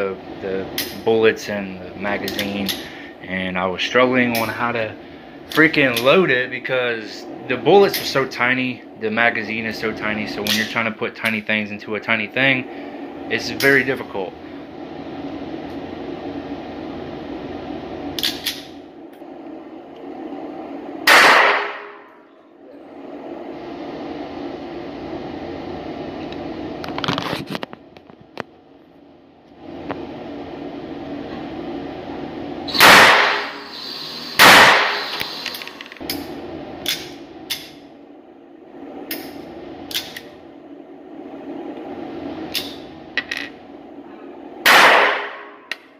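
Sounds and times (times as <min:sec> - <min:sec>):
ventilation hum: 0:00.0 - 0:45.9
loud gunshot ringing: 0:21.1 - 0:22.0, 0:32.7 - 0:33.6, 0:34.4 - 0:35.0, 0:44.7 - 0:45.5
pistol shots echoing indoors: 0:21.1 - 0:22.0, 0:32.7 - 0:33.6, 0:34.4 - 0:35.1, 0:44.6 - 0:45.5.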